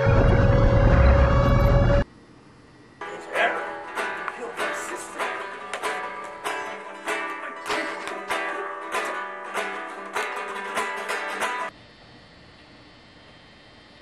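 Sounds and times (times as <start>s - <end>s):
plucked string instrument music: 3.0s - 11.7s.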